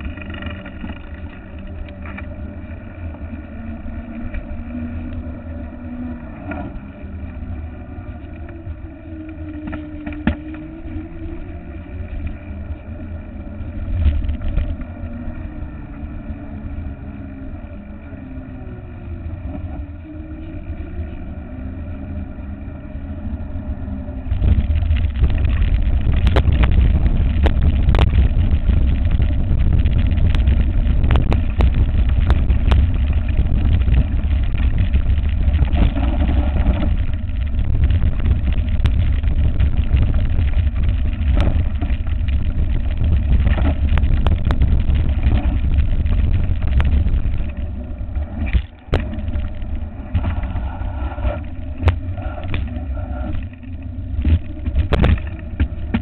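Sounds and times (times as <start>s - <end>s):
wind buffeting camera: 0.0s - 56.0s
bike knocks and rattles: 9.6s - 10.6s, 54.2s - 56.0s.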